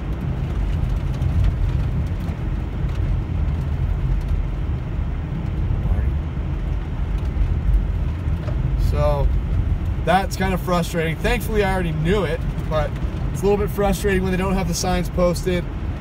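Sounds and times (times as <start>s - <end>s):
tyres rolling on snow: 0.0s - 15.9s
car engine cruising: 0.0s - 16.0s.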